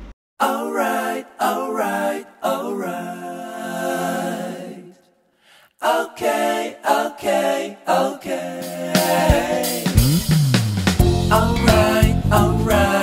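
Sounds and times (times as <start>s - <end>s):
person singing with music: 6.9s - 10.2s, 11.0s - 13.0s.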